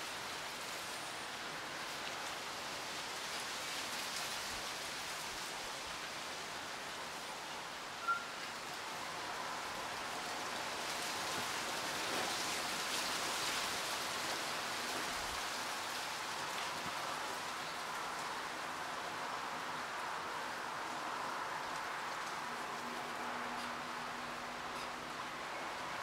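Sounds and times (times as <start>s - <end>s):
wind rustling leaves: 0.0s - 26.0s
brief high note: 8.0s - 8.3s.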